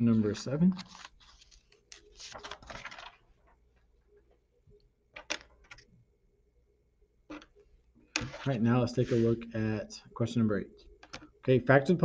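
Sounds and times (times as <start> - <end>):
paper sheets rustling: 0.1 - 3.6.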